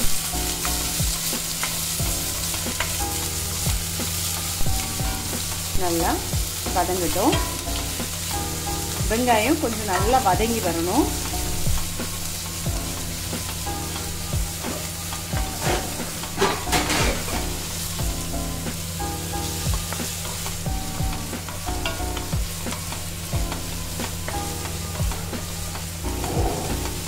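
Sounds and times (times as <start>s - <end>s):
onions sizzling in oil: 0.0s - 27.0s
spatula scraping and tapping pan: 0.6s - 3.0s.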